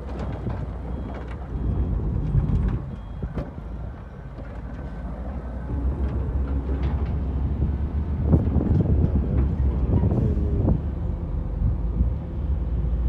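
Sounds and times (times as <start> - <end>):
diesel loader engine rumbling: 0.0 - 13.0.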